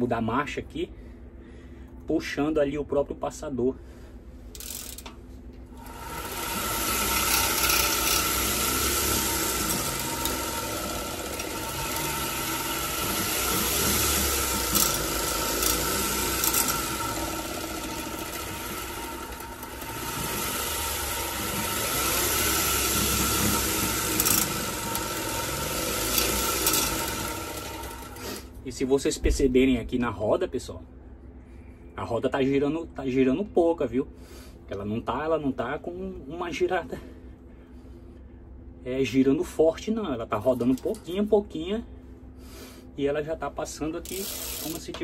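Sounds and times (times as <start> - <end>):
gear shifter whirring and rattling: 4.5 - 28.6.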